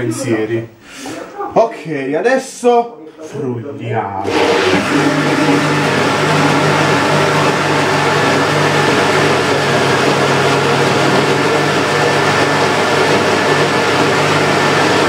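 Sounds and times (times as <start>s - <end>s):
blender motor whirring: 4.2s - 15.0s.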